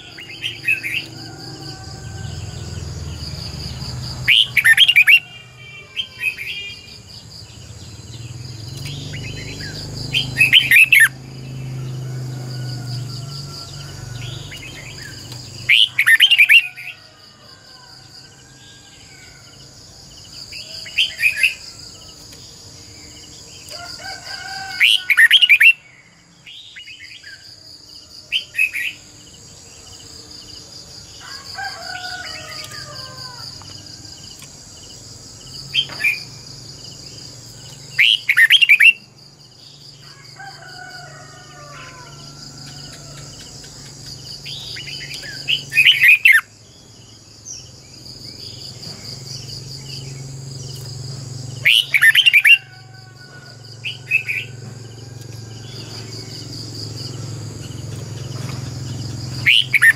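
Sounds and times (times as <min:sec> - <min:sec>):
bird singing rapid phrases: 0:02.4 - 0:12.5, 0:14.1 - 0:16.8, 0:24.9 - 0:27.5, 0:37.1 - 0:39.8, 0:43.4 - 0:46.5, 0:51.5 - 0:52.6, 0:57.1 - 0:59.9.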